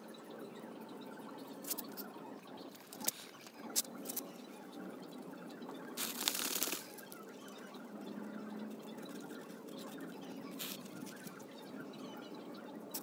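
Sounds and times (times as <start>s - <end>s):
stick scraping soil: 6.0s - 7.0s
crumbling soil rustle: 6.0s - 7.1s.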